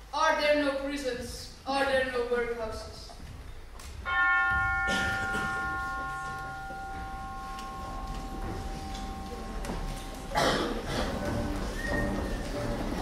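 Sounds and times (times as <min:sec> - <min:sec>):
bell ringing: 0:04.0 - 0:10.8.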